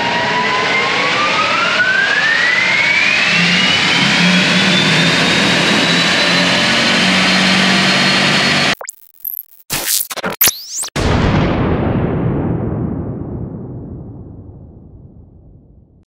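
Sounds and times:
electric drivetrain whine: 0.0s - 8.8s.

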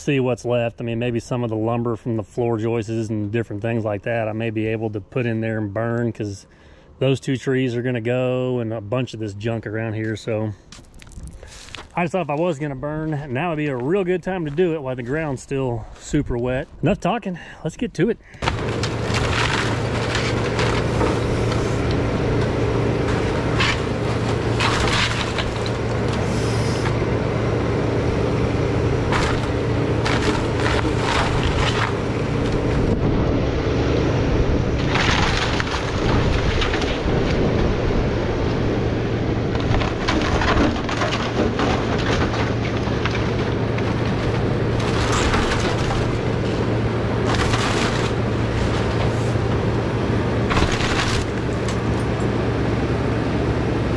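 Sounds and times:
wood cracking and splintering: 10.7s - 12.0s, 18.4s - 27.1s, 29.0s - 33.3s, 34.7s - 38.0s, 39.5s - 49.6s, 50.4s - 52.3s
excavator diesel engine: 11.3s - 53.9s.

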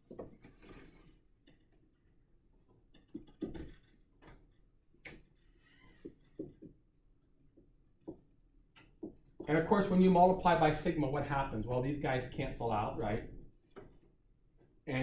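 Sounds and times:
faint clicks and knocks: 2.7s - 5.4s.

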